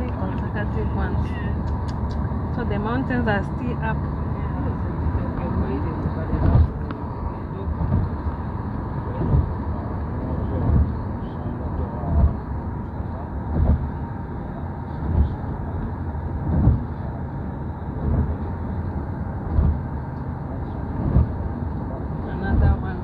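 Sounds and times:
tyre and engine rumble: 0.0s - 23.0s
low thump: 7.8s - 8.2s, 9.2s - 9.6s, 13.5s - 13.9s, 16.4s - 16.9s, 19.5s - 19.9s, 21.0s - 21.4s.

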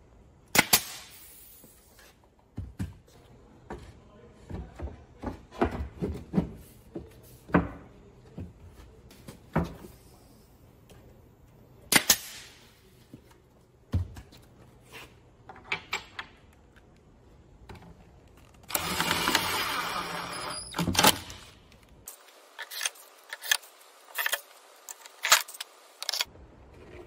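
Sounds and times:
cordless drill whirring: 18.7s - 20.7s.

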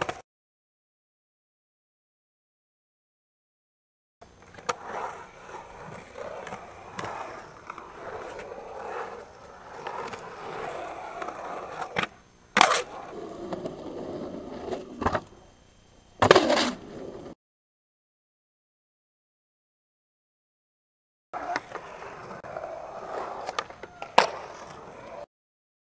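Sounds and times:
skateboard wheels rolling on concrete: 4.2s - 15.5s, 16.2s - 17.4s, 21.4s - 25.3s
skateboard clacks: 4.3s - 13.7s, 21.4s - 25.3s
skateboard clatter: 4.3s - 15.4s, 16.2s - 17.3s, 21.4s - 25.3s.

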